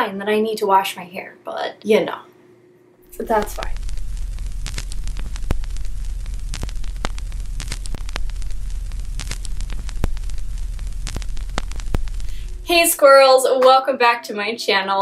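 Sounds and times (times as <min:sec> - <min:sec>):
low hum: 0:02.9 - 0:13.2
crackling static: 0:03.0 - 0:14.1
sharp pops and clicks: 0:03.1 - 0:12.8.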